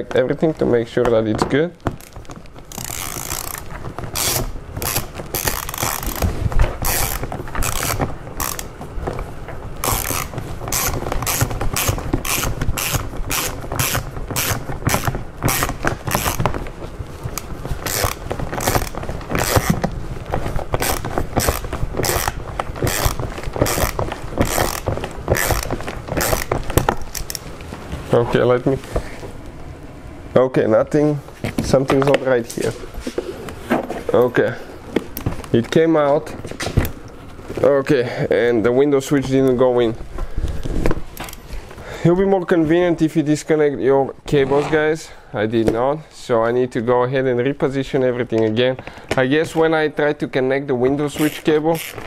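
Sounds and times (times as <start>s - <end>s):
hand ratchet clicking: 1.9s - 8.8s, 9.8s - 16.6s, 17.3s - 19.9s, 20.7s - 27.5s, 51.2s - 52.0s.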